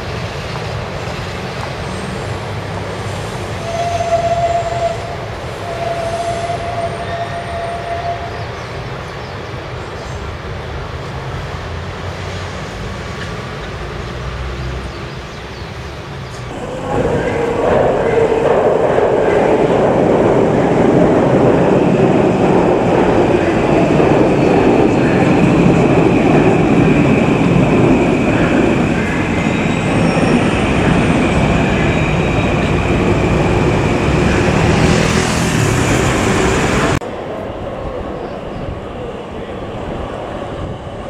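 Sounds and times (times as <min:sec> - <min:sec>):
train wheels rumbling on bridge: 0:16.3 - 0:37.2.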